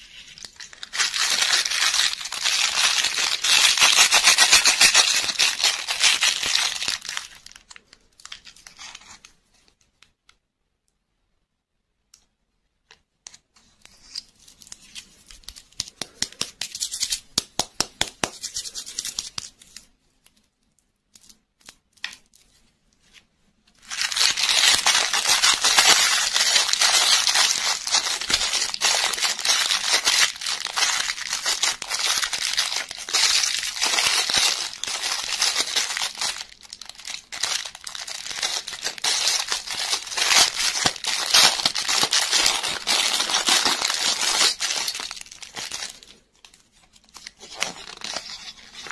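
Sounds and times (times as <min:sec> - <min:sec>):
plastic bag crinkling and tearing: 0:00.0 - 0:09.3, 0:23.8 - 0:48.9.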